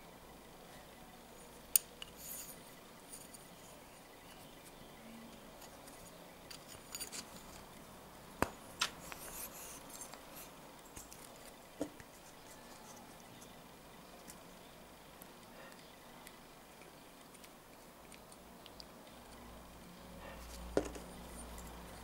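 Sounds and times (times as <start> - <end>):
parts scraping and rubbing: 1.4 - 7.8, 8.7 - 13.6
small tube parts clicking: 5.6 - 7.7.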